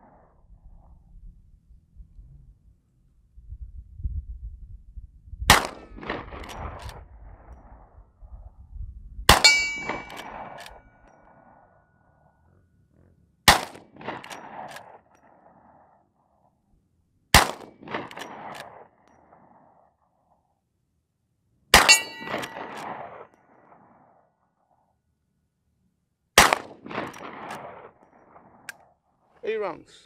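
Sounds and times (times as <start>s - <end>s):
rifle shots: 5.5s - 7.0s, 9.3s - 10.7s, 13.5s - 15.0s, 17.3s - 18.9s, 21.7s - 23.2s, 26.4s - 28.6s
metallic ring: 9.4s - 10.4s, 21.8s - 22.8s.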